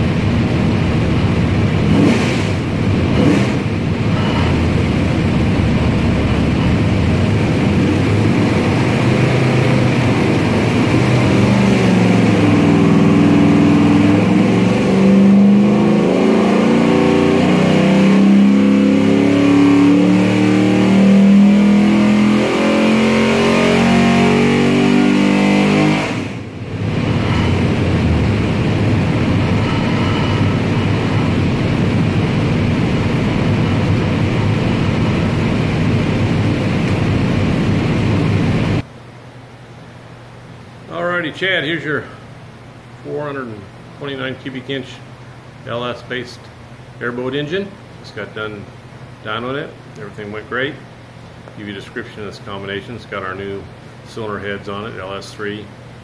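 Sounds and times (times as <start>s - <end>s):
engine running under load: 0.0s - 38.8s.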